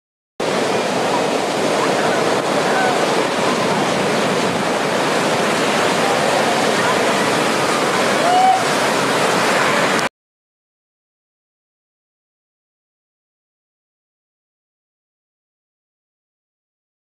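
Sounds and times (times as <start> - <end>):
heavy surf breaking: 0.4 - 10.1.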